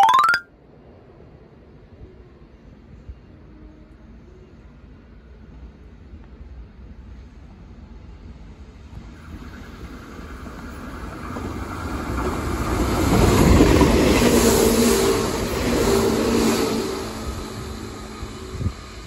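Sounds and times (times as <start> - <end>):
electric train passing: 8.2 - 19.0.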